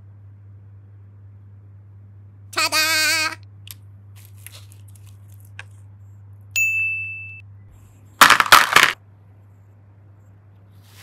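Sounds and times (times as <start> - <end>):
loud crackling rustling noise: 4.1 - 5.8
ding chime: 6.6 - 7.4.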